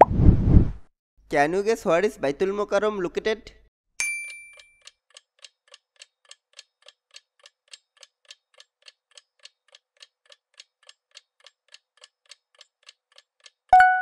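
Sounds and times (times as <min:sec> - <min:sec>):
clock ticking: 0:04.8 - 0:14.0.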